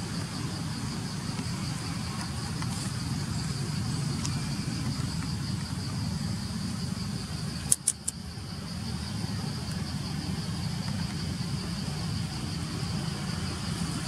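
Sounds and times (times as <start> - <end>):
constant low rumble: 0.0 - 14.0
sharp clicks: 7.7 - 8.2.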